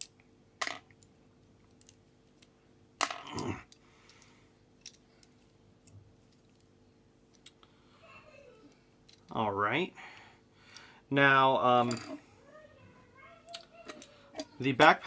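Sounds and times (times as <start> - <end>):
plastic parts clattering: 11.8 - 12.2.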